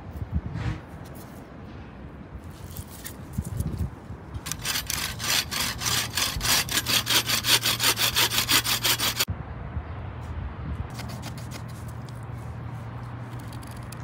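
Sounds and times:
hand saw rasping through wood: 4.4 - 9.3.

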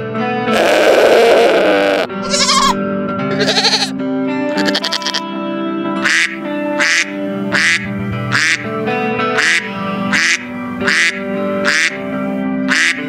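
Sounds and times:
background music: 1.5 - 13.0
duck quacking: 4.6 - 5.2, 6.0 - 8.7, 9.4 - 13.0.

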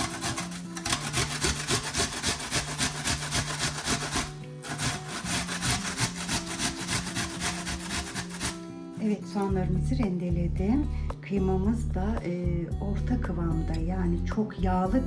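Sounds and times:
onion grated on metal grater: 0.0 - 8.7.

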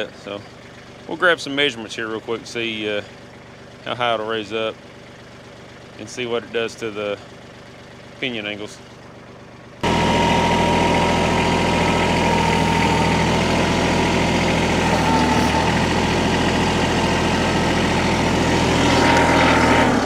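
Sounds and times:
air compressor running: 8.8 - 20.0.

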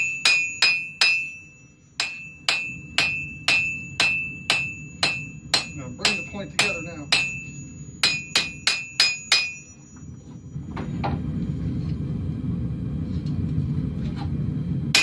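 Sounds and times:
hammer striking steel on anvil: 0.0 - 10.4
steady low rumble: 0.0 - 15.0.

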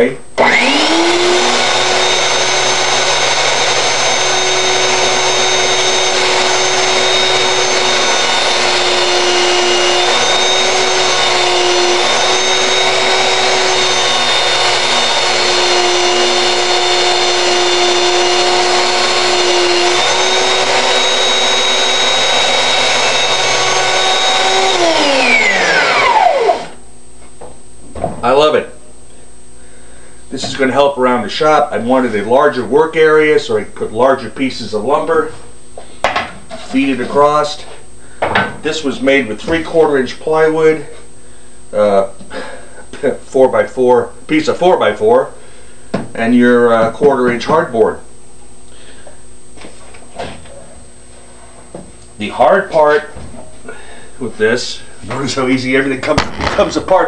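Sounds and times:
belt sander running: 0.4 - 26.8.

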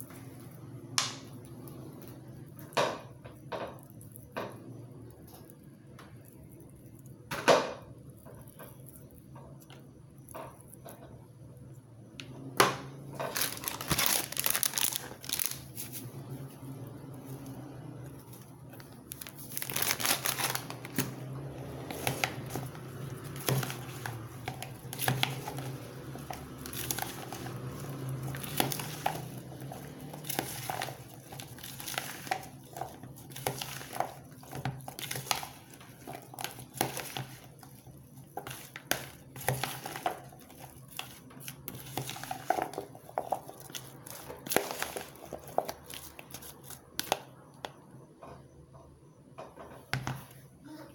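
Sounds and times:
foil packet crinkling: 13.1 - 16.1, 18.1 - 47.2.

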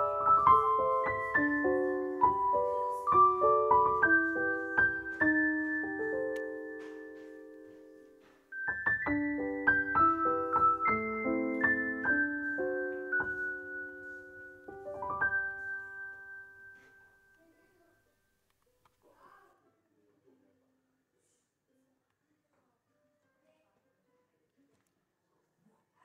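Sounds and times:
piano music: 0.0 - 17.4.

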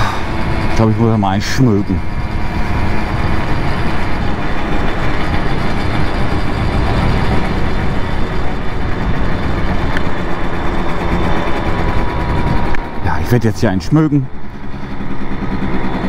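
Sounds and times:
two-stroke moped engine: 0.0 - 16.0
wind rushing over microphone: 0.0 - 16.0.

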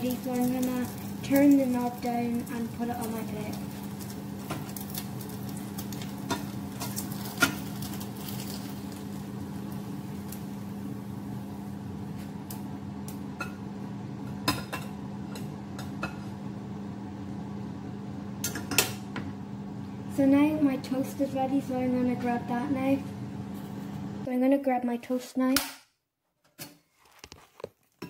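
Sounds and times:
steady low hum: 0.0 - 24.3.

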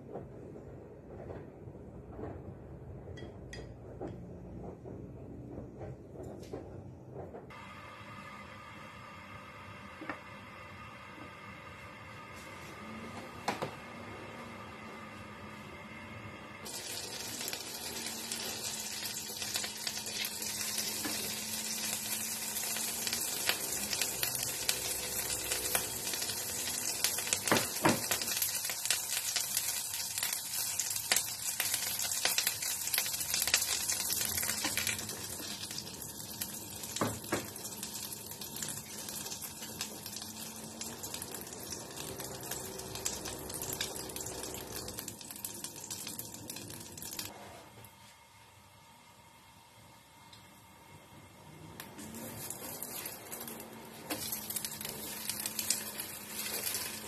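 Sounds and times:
oil sizzling in a pan: 7.5 - 47.4, 51.8 - 57.0.

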